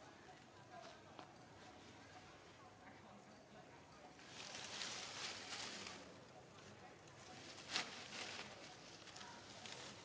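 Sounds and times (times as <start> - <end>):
undergrowth rustling: 4.2 - 6.2, 7.2 - 10.0.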